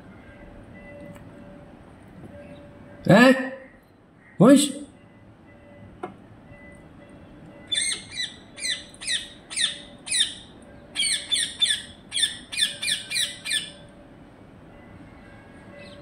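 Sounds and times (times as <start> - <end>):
parakeets squawking: 7.7 - 10.4, 11.0 - 13.8.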